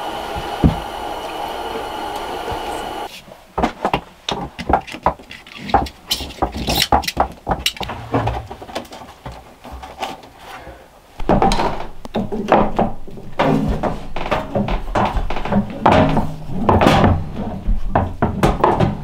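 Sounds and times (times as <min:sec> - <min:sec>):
loud steady sound: 0:00.0 - 0:03.1.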